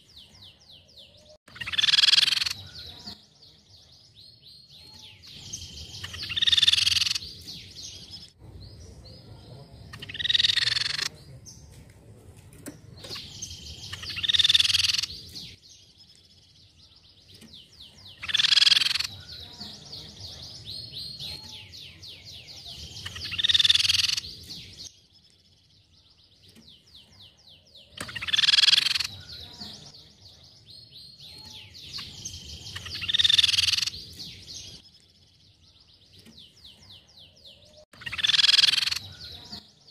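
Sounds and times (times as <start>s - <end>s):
fast rattling bird trill: 1.5s - 3.2s, 4.9s - 7.3s, 9.9s - 11.1s, 13.1s - 15.3s, 18.1s - 19.5s, 22.6s - 24.4s, 27.9s - 29.9s, 31.4s - 34.8s, 38.0s - 39.6s.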